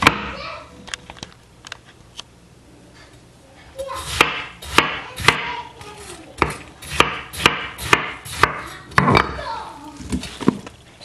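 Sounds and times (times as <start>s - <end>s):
knife chopping on wooden board: 0.0s - 0.4s, 4.0s - 5.6s, 6.4s - 9.3s.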